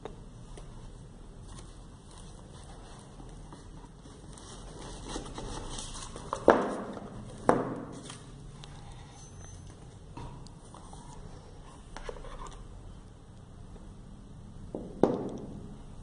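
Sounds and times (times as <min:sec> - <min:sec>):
cardboard box rustling: 0:01.5 - 0:06.5.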